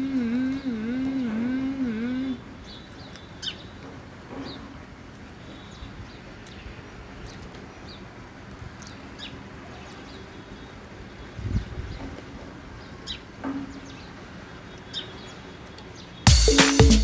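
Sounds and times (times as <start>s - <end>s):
outdoor background hiss: 0.0s - 17.0s
small birds chirping: 0.0s - 17.0s.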